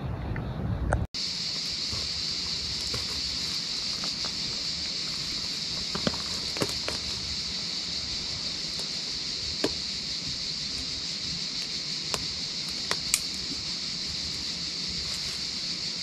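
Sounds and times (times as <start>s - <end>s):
cicadas singing: 1.2s - 16.0s.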